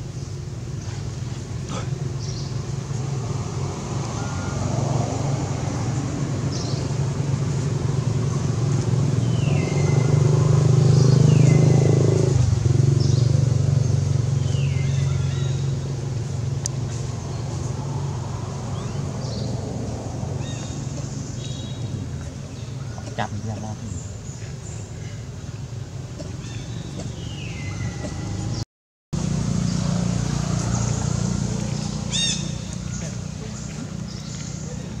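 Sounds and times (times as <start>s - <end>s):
vehicle engine running: 29.2s - 35.0s.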